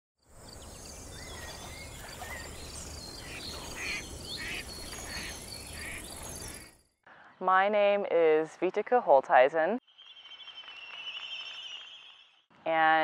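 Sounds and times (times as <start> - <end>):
birds chirping and calling: 0.5 - 6.8.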